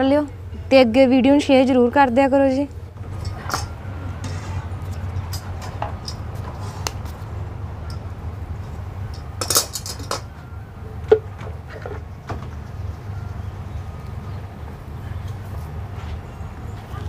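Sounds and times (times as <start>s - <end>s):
steady low hum: 0.0s - 17.0s
metal spatula scraping griddle: 4.1s - 4.9s.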